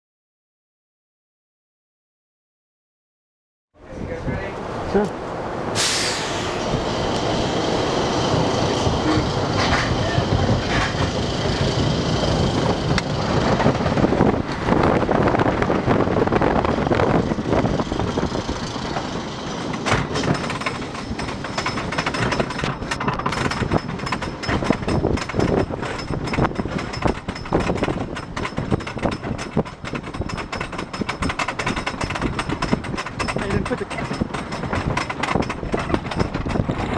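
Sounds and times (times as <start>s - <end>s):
roller coaster train rumbling: 3.8s - 36.9s
lift chain clicking clatter: 18.8s - 36.9s.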